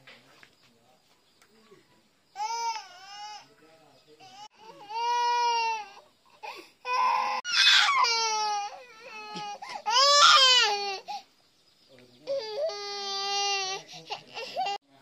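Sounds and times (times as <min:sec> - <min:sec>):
baby crying: 0:02.4 - 0:03.5, 0:04.2 - 0:11.2, 0:12.2 - 0:14.8.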